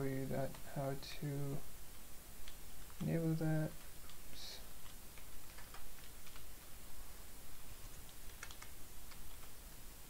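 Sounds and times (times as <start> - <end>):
keyboard keystrokes: 8.1 - 9.5.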